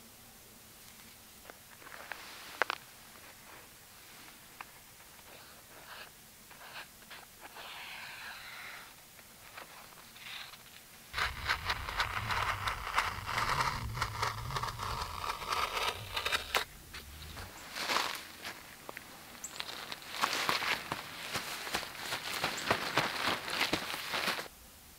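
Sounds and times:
marker scratching on fabric: 5.3s - 8.8s.

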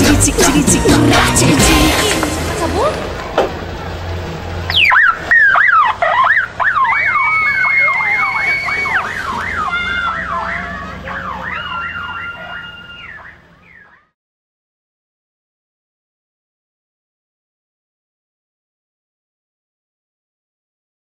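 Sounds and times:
electronic siren sweeping: 4.7s - 14.2s.

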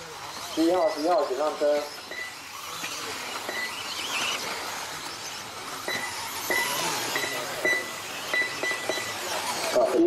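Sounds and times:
toy car motors and tyres hissing: 0.0s - 10.0s
short high beeps: 2.1s - 2.4s, 5.9s - 9.2s.

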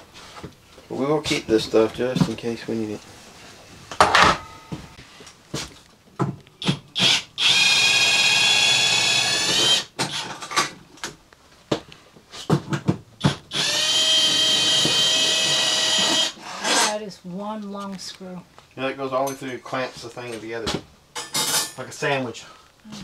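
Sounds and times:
cordless drill whine: 7.0s - 10.3s, 13.5s - 16.9s.

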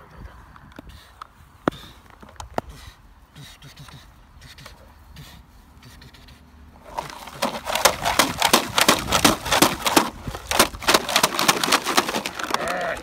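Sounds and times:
puppies tussling crackling and clicking: 6.8s - 13.0s.

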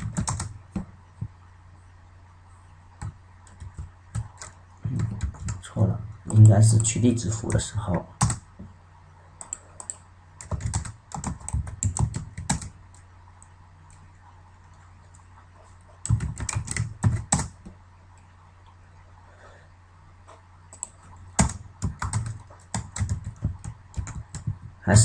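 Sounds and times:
typing on computer keyboard: 0.0s - 0.8s, 3.0s - 5.6s, 8.2s - 8.4s, 9.4s - 13.0s, 16.0s - 17.7s, 20.7s - 24.7s.

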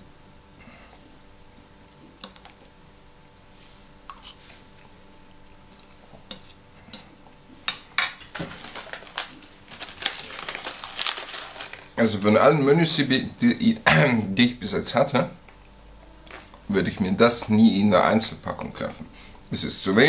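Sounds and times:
packet crinkling: 8.3s - 12.3s.

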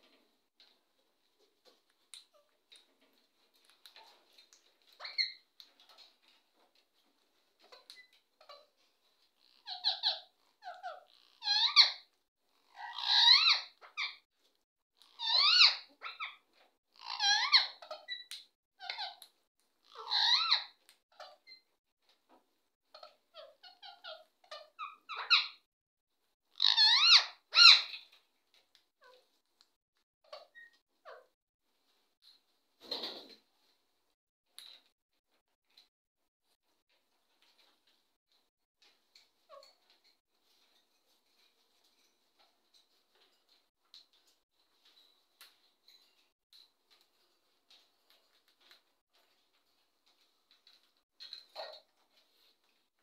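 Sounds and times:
parakeets screeching: 9.6s - 12.0s, 12.7s - 14.2s, 15.2s - 16.4s, 17.0s - 19.2s, 19.9s - 21.6s, 26.6s - 28.1s
parakeets chirping: 15.2s - 16.4s, 19.9s - 21.6s, 26.6s - 28.2s.

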